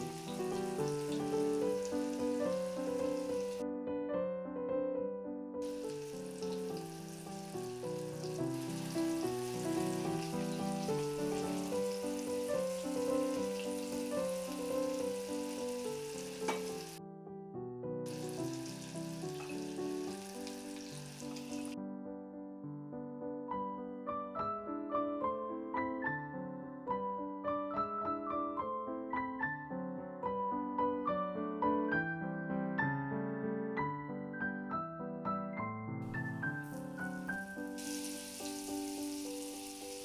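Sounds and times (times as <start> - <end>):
meatballs sizzling in oil: 0.0 - 3.6, 5.6 - 17.0, 18.1 - 21.8, 36.3 - 40.0
piano background music: 0.0 - 40.0.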